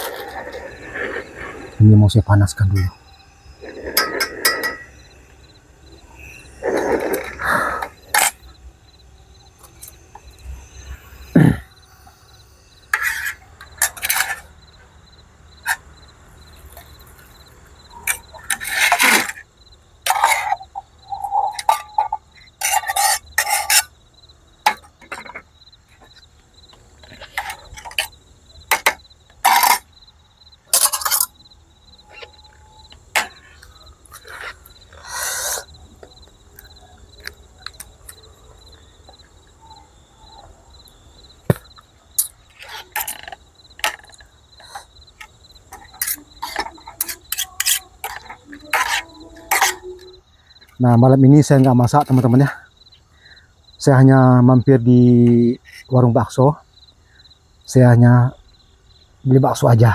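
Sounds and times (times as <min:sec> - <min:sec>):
crickets chirping: 0:00.0 - 0:59.9
metal cookware clinking: 0:03.9 - 0:05.0.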